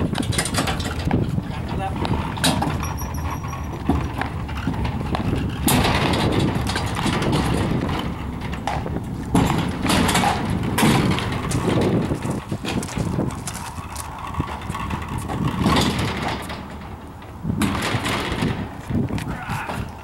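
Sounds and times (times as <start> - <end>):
dolly wheels rumbling on concrete: 0.0 - 20.0
sharp knocks: 2.4 - 12.9.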